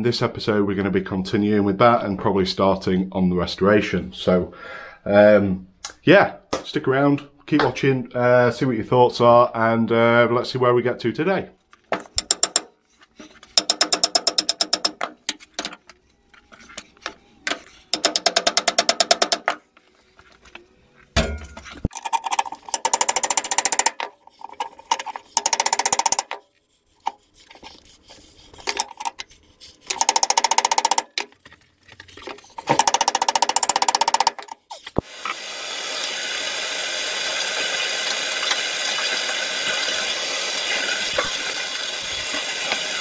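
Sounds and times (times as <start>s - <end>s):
rubber mallet striking wood lathe: 13.6s - 15.2s, 17.9s - 19.6s, 22.7s - 24.1s, 25.3s - 26.4s, 29.9s - 31.2s, 32.6s - 34.6s.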